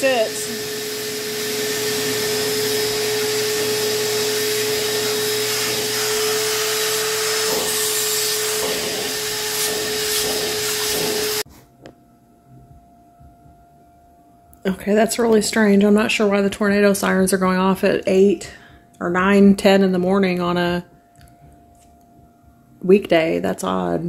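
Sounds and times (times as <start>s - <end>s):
vacuum cleaner whine: 0.0s - 11.5s.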